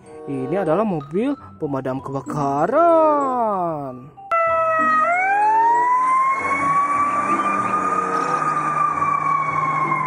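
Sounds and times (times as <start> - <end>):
fire engine siren: 4.3 - 10.0.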